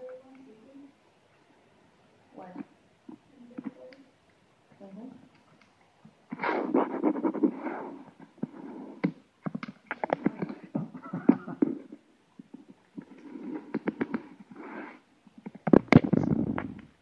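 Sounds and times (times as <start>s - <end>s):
close scratching and rustling: 6.3s - 9.1s.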